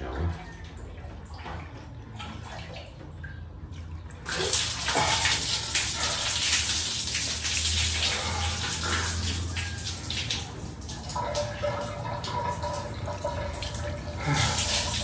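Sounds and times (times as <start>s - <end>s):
water pouring and splashing: 0.0s - 15.0s.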